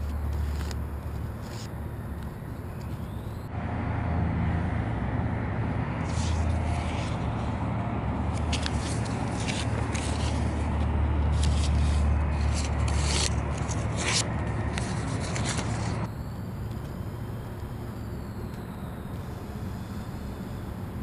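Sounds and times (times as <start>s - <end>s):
paper being folded and creased: 0.0s - 3.1s, 6.0s - 7.6s, 8.3s - 16.1s
steady low rumble: 0.0s - 21.0s.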